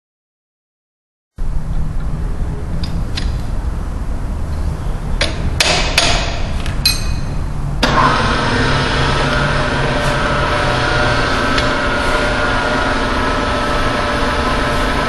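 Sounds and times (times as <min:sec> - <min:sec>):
metal vise clanks: 0:05.2 - 0:07.4
milling machine motor running: 0:07.8 - 0:15.0.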